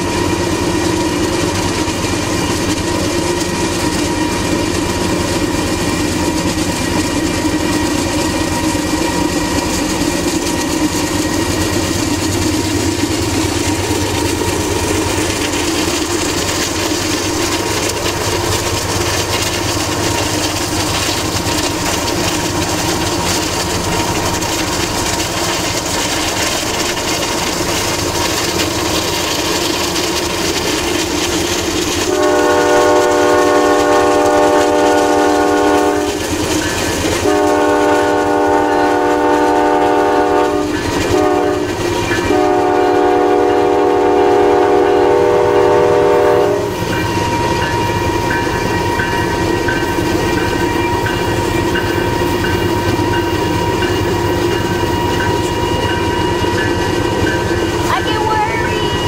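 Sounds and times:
diesel locomotive rumbling past: 0.0 - 59.0
train air horn blasts: 32.1 - 36.2, 37.2 - 46.8.

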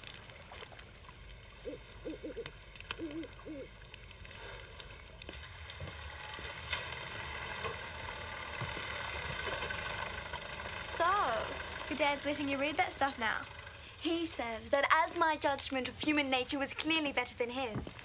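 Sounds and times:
owl hooting: 1.6 - 3.8.

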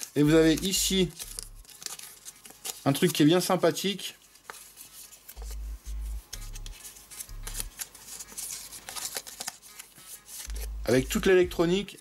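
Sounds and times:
paper card rustling: 0.0 - 12.0
low bass notes of music: 0.2 - 1.7, 5.4 - 7.7, 10.5 - 11.9.

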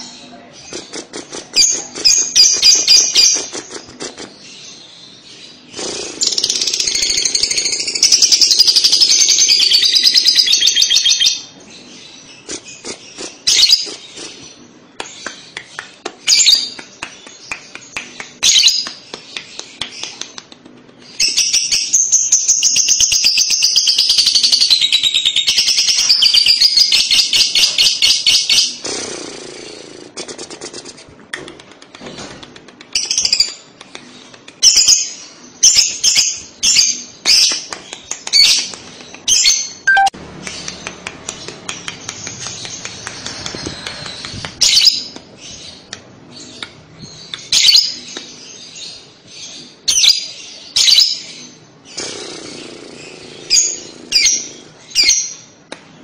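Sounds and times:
bird chirping: 0.0 - 20.2, 34.2 - 55.6
lovebird trilling song: 38.3 - 40.2.

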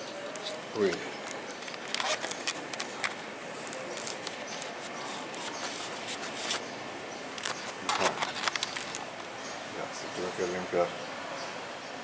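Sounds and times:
steady background hiss: 0.0 - 12.0
camera handling clicks and knocks: 7.4 - 9.0.

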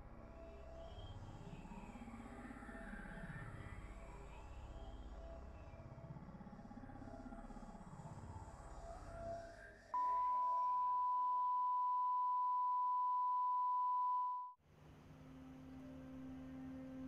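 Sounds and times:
low drone of held tones: 15.2 - 17.0.

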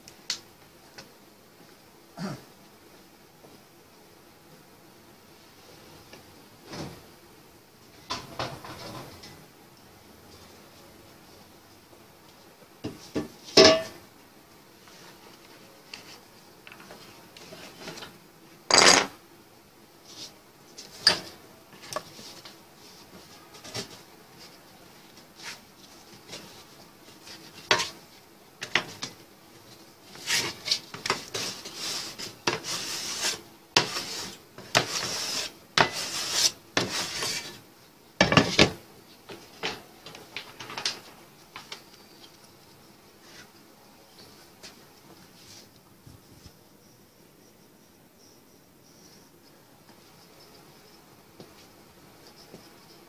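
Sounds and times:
metal scraping on wood: 30.1 - 37.6.

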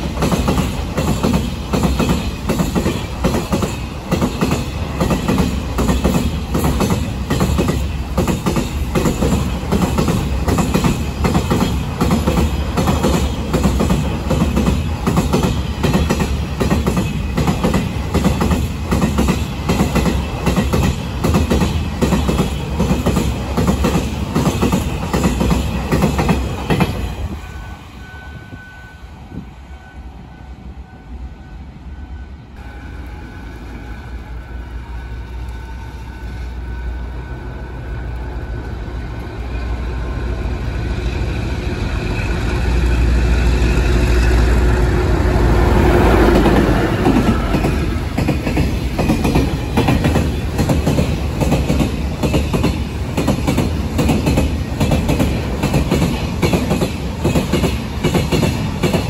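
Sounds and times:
train wheels clicking over rail joints: 0.0 - 27.4, 45.7 - 59.0
train rumbling: 0.0 - 59.0.

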